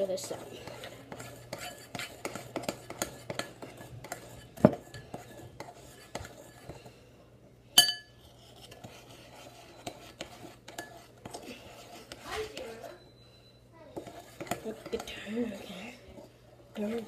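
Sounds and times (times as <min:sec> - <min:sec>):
spoon scraping batter in bowl: 0:00.0 - 0:07.2, 0:08.0 - 0:17.0
ringing clink on bowl: 0:07.8 - 0:08.1.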